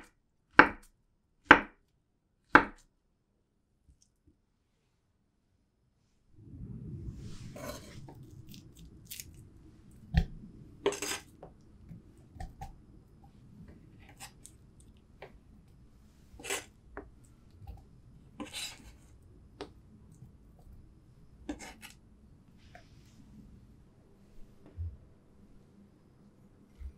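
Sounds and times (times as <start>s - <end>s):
low handling rumble: 6.3s - 13.8s.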